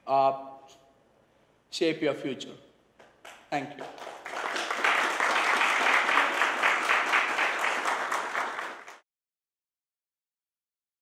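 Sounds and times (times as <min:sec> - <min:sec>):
audience applauding: 0:03.2 - 0:09.0.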